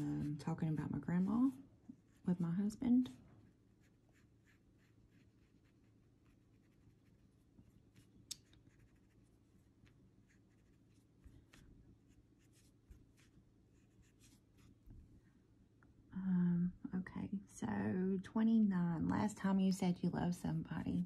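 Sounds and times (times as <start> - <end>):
low steady hum: 0.0 - 21.0
pencil scratching on paper: 3.8 - 7.3, 7.9 - 9.4, 10.2 - 14.7.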